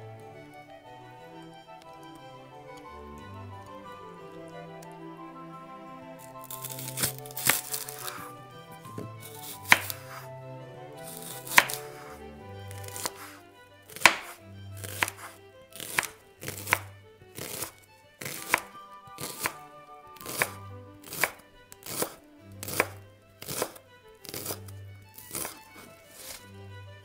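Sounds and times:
soft background music: 0.0s - 27.0s
knife chopping on wooden board: 9.0s - 10.2s, 11.1s - 12.0s, 12.8s - 19.6s, 20.2s - 24.6s, 25.2s - 25.6s.

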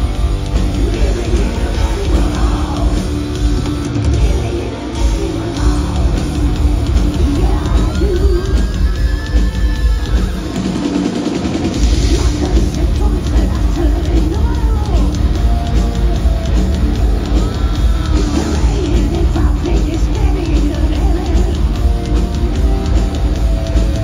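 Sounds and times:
heavy metal band playing live: 0.0s - 24.0s
man singing: 0.6s - 3.2s, 4.2s - 6.5s, 7.1s - 8.6s, 12.0s - 15.2s.

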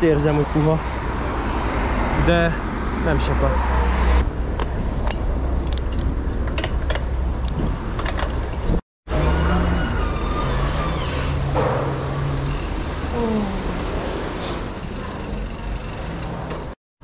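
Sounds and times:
street traffic: 0.0s - 16.8s
vehicle engine humming: 11.4s - 16.8s.

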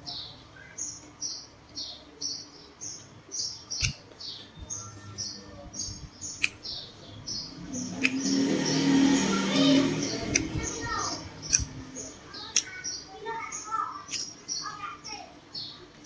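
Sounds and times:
small bird chirping: 0.0s - 16.0s
sharp clicks: 3.8s - 4.2s, 6.3s - 6.7s, 7.8s - 8.4s, 9.6s - 11.8s, 12.5s - 13.0s, 14.1s - 14.4s.

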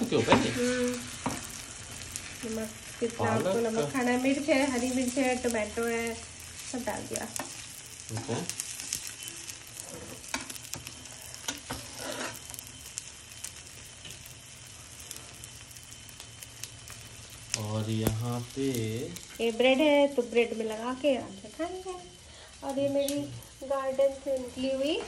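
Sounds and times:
omelette sizzling in a frying pan: 0.0s - 25.0s
metal spatula scraping a pan: 11.4s - 12.6s.

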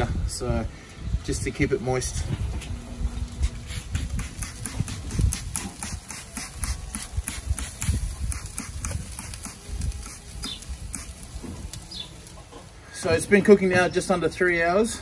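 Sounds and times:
spray bottle spritzing: 3.4s - 12.3s.

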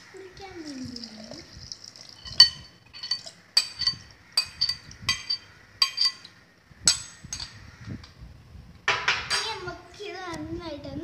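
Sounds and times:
metal ladle clinking: 2.2s - 7.6s.

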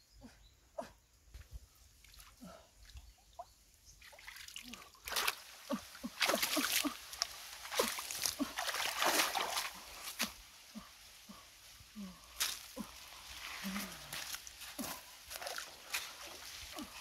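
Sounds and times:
water splashing and sloshing: 4.0s - 11.4s, 12.4s - 17.0s.

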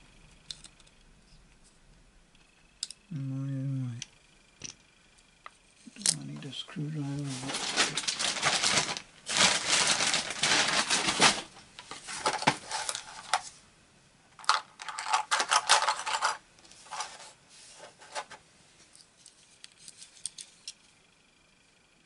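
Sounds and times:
small tools rattling: 7.3s - 13.5s, 14.4s - 17.4s.

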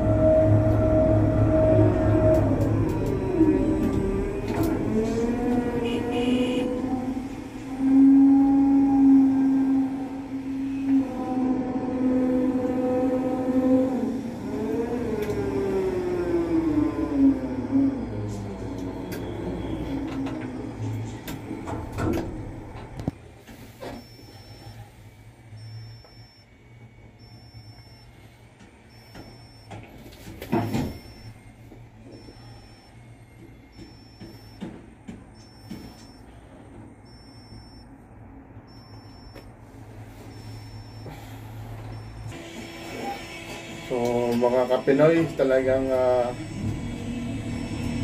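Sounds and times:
low engine hum: 0.0s - 23.2s
faint high beep: 24.0s - 24.8s, 25.6s - 26.5s, 27.2s - 28.2s, 28.9s - 29.7s, 30.7s - 31.4s, 33.7s - 34.7s, 35.4s - 36.4s, 37.0s - 37.9s, 38.7s - 39.5s, 40.3s - 42.3s.

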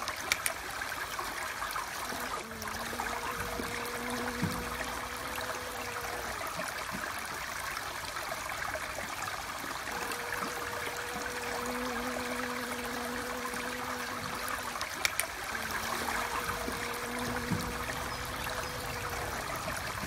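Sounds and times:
rushing water: 0.0s - 20.0s
short clicks: 0.1s - 0.6s, 14.9s - 15.4s
honeybee wing buzz: 2.0s - 6.8s, 9.8s - 20.0s.

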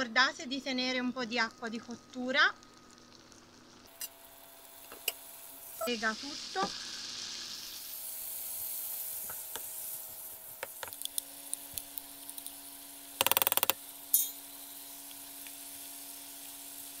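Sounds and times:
pasta sizzling in a frying pan: 0.0s - 17.0s.

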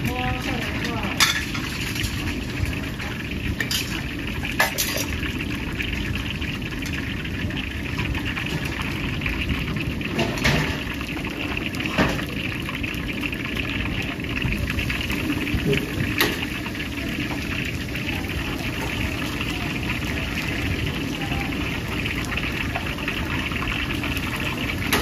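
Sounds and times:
food sizzling in hot oil: 0.0s - 25.0s.

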